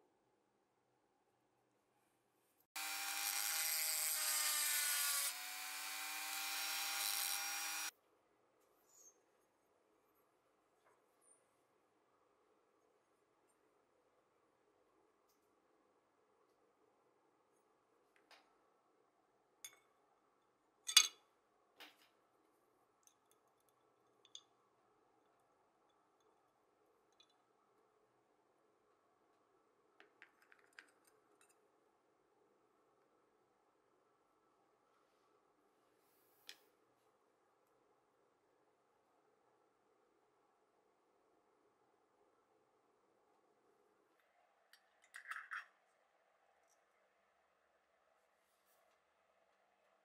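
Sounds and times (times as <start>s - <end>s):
rotary tool grinding metal: 2.8s - 7.9s.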